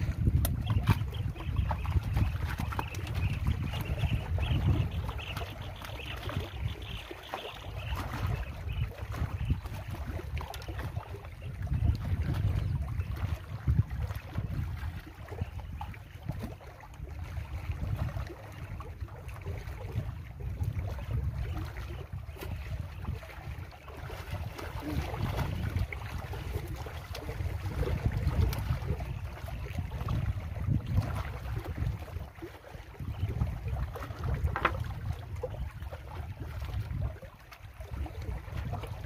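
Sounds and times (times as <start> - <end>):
water washing against rocks: 0.0 - 5.7, 24.2 - 31.8
wind buffeting microphone: 0.0 - 39.0.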